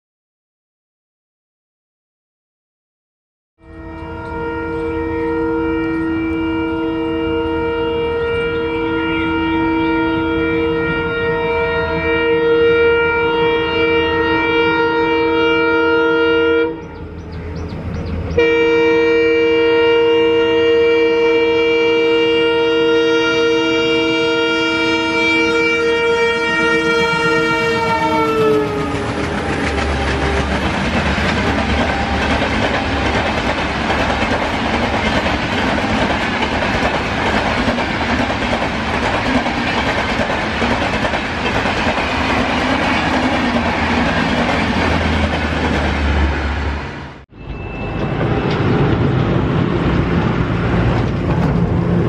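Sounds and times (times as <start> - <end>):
locomotive horn blast: 3.6 - 17.2, 18.3 - 33.4
train rumbling: 3.7 - 15.6, 16.6 - 20.0, 20.6 - 52.0.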